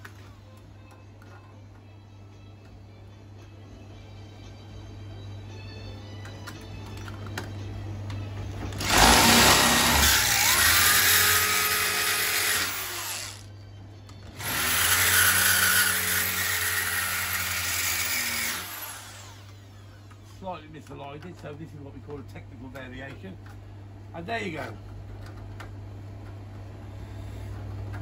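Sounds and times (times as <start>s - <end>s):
electric drill boring: 8.8s - 13.5s, 14.4s - 19.7s.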